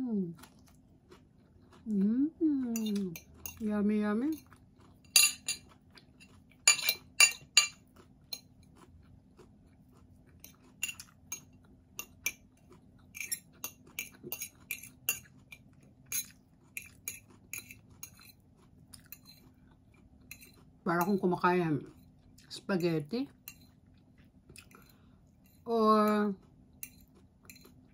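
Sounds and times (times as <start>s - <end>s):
chewing: 0.2s - 3.6s, 4.2s - 27.9s
fork clinking on ceramic plate: 5.1s - 8.5s, 10.4s - 12.4s, 13.2s - 18.4s.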